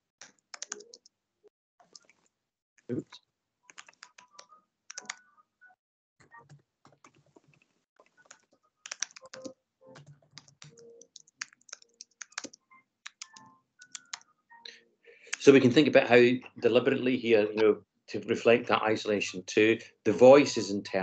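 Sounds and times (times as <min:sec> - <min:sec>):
typing on a computer keyboard: 0:00.2 - 0:01.1, 0:03.7 - 0:05.3, 0:06.2 - 0:14.3.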